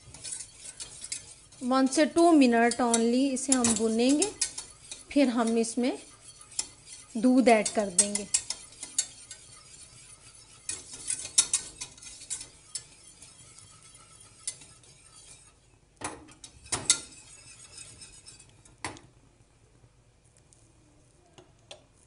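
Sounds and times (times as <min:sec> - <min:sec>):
roux bubbling: 0:00.0 - 0:15.6
whisk scraping a steel saucepan: 0:00.0 - 0:18.8.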